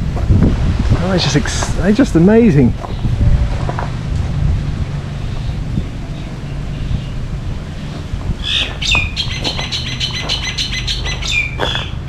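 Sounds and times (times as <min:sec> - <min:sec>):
wind rumble on microphone: 0:00.0 - 0:12.0
birds squawking and chirping: 0:02.8 - 0:03.8, 0:05.0 - 0:12.0.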